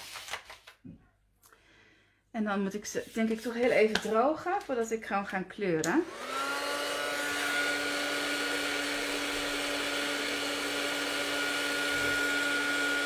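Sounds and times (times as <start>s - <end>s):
heat tool fan whining: 6.1s - 13.0s.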